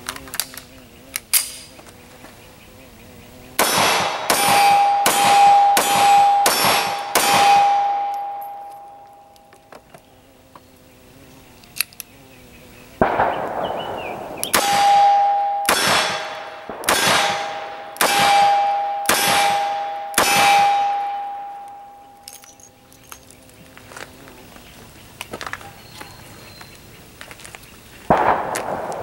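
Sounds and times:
handgun shots ringing: 0:03.6 - 0:09.4, 0:13.0 - 0:22.7, 0:28.1 - 0:29.0.

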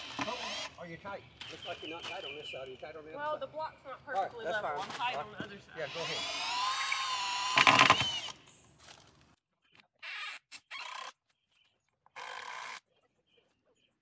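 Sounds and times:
cordless drill whining: 0:00.0 - 0:00.8, 0:05.8 - 0:08.4, 0:12.2 - 0:12.8
drill rattle: 0:00.0 - 0:00.8, 0:05.9 - 0:08.4.

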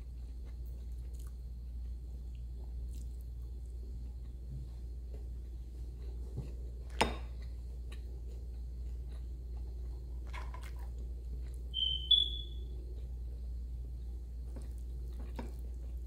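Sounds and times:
steady low hum: 0:00.0 - 0:16.0
high squeaky whistle: 0:11.7 - 0:12.7.

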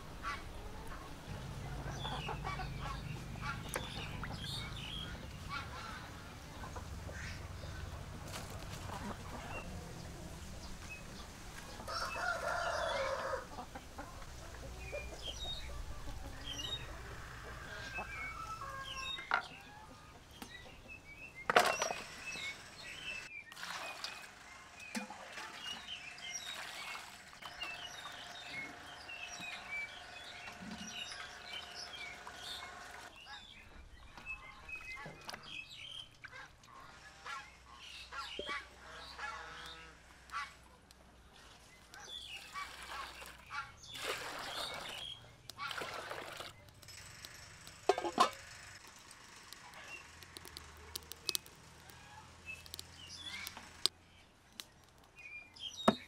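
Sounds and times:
birds chirping: 0:00.0 - 0:56.0
water poured into metal pot: 0:23.5 - 0:24.3, 0:45.6 - 0:46.6
water splashing in metal bowl: 0:42.4 - 0:46.8.

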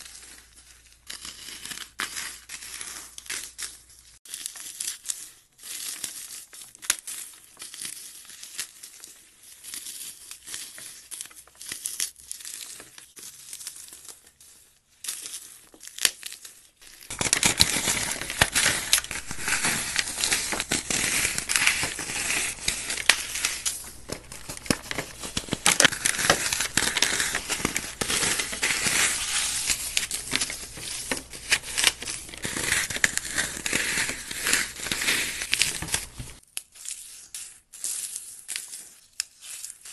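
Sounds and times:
floral foam crunching by hand: 0:16.9 - 0:36.4.

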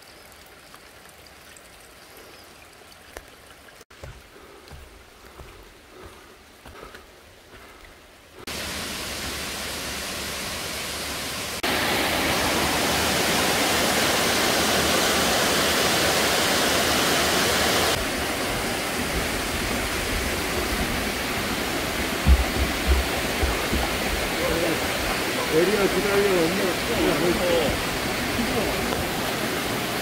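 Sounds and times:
water cascading down hillside: 0:00.0 - 0:30.0.

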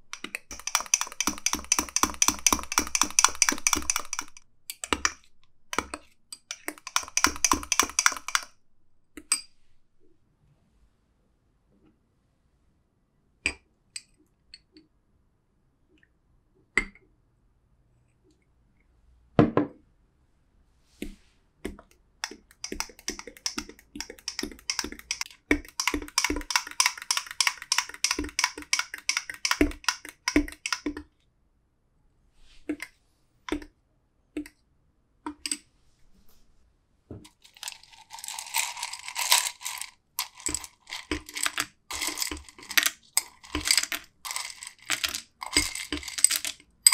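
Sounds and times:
ice cubes clinking in bowl: 0:37.3 - 0:46.9
teaspoon clinking in glass: 0:37.5 - 0:46.9.

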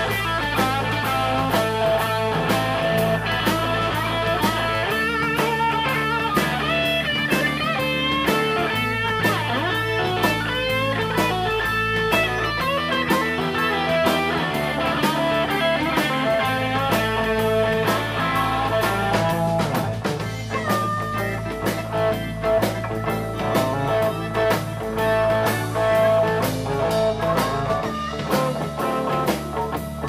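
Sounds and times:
drum kit beat: 0:00.0 - 0:30.0
electric guitars: 0:00.0 - 0:30.0.

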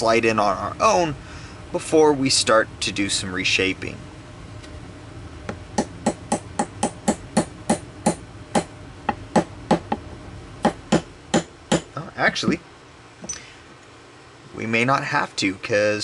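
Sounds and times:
hammer tapping metal punch: 0:05.5 - 0:10.0, 0:10.6 - 0:11.9.

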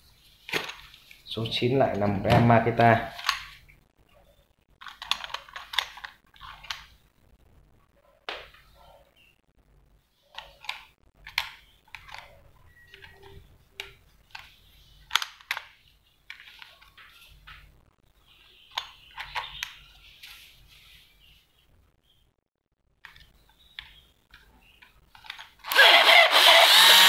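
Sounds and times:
sharp plastic clacks: 0:04.8 - 0:06.9, 0:13.0 - 0:17.7.

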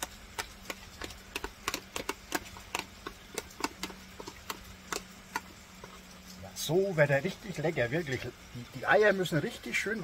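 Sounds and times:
spoon scraping and tapping plastic: 0:00.0 - 0:06.0.

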